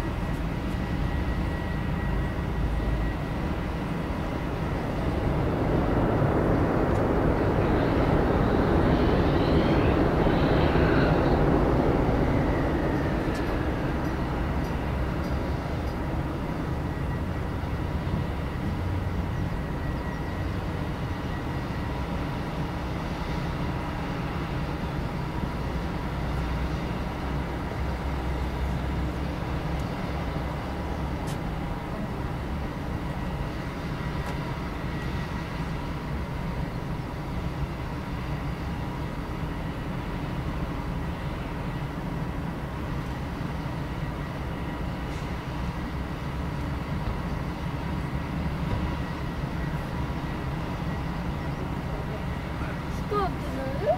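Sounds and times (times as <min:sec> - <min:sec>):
jet engines idling whine: 0:00.0 - 0:53.9
jet engines rushing: 0:00.0 - 0:53.9.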